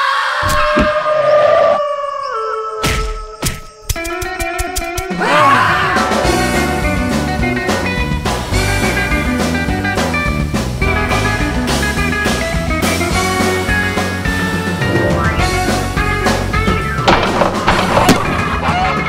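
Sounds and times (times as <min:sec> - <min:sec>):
rock background music: 0:04.0 - 0:19.0.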